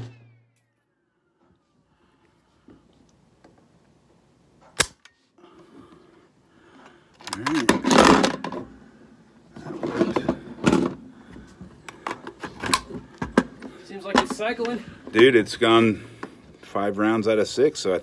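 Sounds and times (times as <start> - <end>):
clattering and knocking: 7.6 - 8.7.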